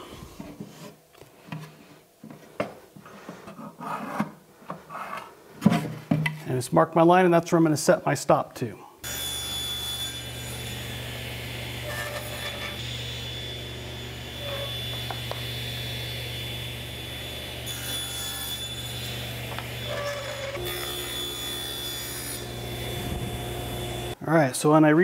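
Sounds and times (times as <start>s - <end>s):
saw blade cutting wood: 9.0s - 24.2s
table saw motor hum: 9.0s - 24.2s.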